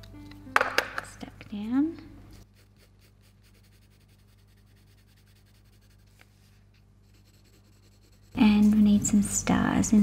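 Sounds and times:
pencil scratching on paper: 2.4 - 8.8.

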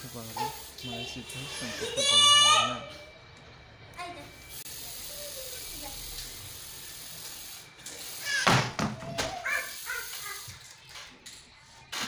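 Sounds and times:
spray can hissing: 0.0 - 1.2, 4.5 - 10.9.

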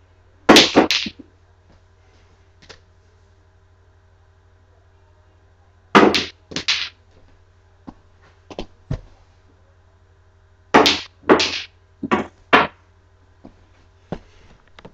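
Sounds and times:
cue striking balls: 0.5 - 1.3, 6.0 - 6.9, 10.8 - 12.8
pool balls knocking together: 0.5 - 1.3, 6.0 - 6.9, 10.8 - 12.8.

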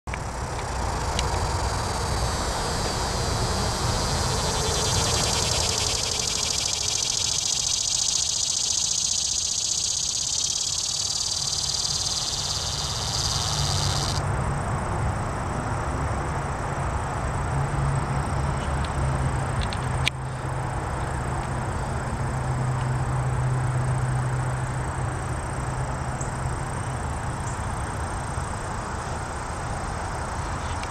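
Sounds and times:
cicada buzzing: 0.1 - 14.3.

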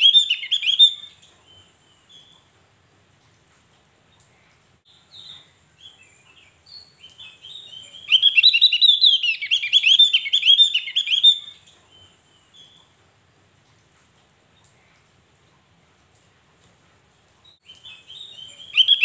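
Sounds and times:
bird chirping and singing: 0.0 - 2.4, 4.9 - 12.9, 17.6 - 19.0.

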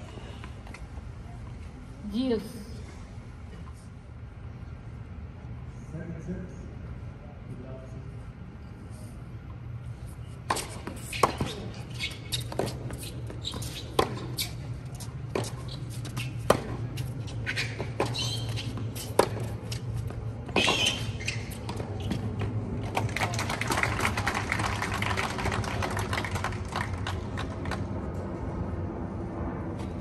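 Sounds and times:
racket hitting tennis ball: 10.4 - 23.0
ball bouncing on hard court: 10.5 - 14.5, 15.3 - 16.8.

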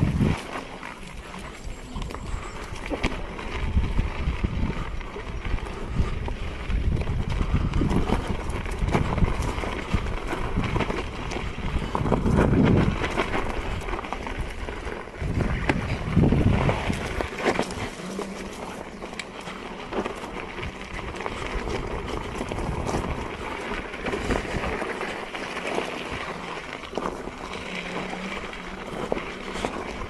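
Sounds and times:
tyre crunching on stony ground: 0.0 - 30.0
wind buffeting microphone: 0.0 - 30.0.

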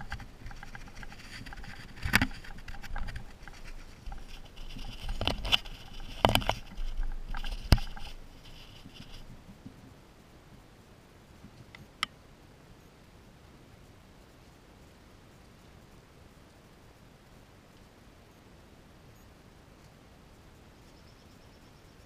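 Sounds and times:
fur rubbing and scratching: 0.0 - 9.5.

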